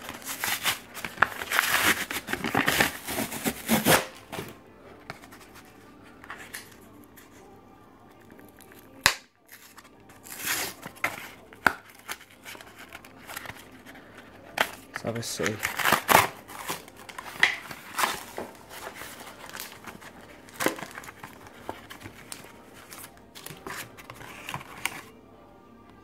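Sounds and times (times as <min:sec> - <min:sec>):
blister pack ripping and crinkling: 0:00.0 - 0:04.4, 0:08.2 - 0:25.1
package handling: 0:00.0 - 0:07.4, 0:08.1 - 0:25.2
sharp plastic snap: 0:09.0 - 0:09.3.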